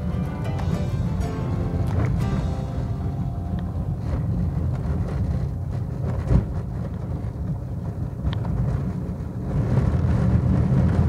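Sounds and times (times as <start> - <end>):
car engine and tyres rumbling: 0.0 - 11.0
wind on microphone: 0.0 - 11.0.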